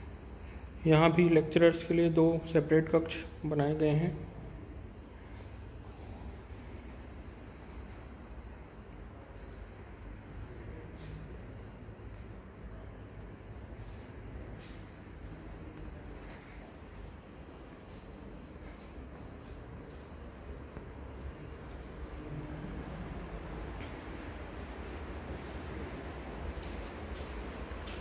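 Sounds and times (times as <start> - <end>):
insect chirping: 0.0 - 28.0
handling and footstep noise: 23.0 - 28.0.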